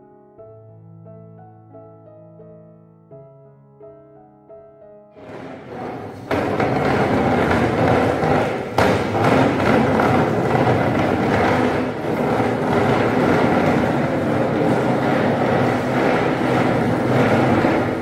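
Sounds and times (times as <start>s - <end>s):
sharp knock: 5.2s - 14.0s.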